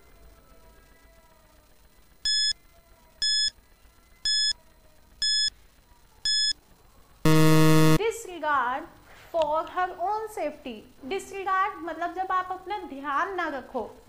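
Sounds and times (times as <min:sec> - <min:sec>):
short high beeps: 0:02.3 - 0:02.5, 0:03.2 - 0:03.5, 0:04.3 - 0:04.5, 0:05.2 - 0:05.5, 0:06.3 - 0:06.5, 0:07.3 - 0:08.0
low buzzer: 0:02.3 - 0:02.6, 0:03.2 - 0:03.5, 0:04.3 - 0:04.6, 0:05.2 - 0:05.5, 0:06.3 - 0:06.6, 0:07.3 - 0:08.0.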